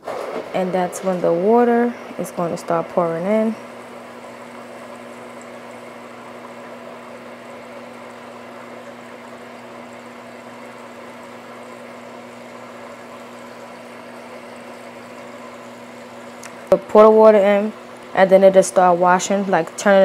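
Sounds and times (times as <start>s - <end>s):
steady hum: 0.0s - 20.0s
water pouring into washing machine: 0.0s - 20.0s.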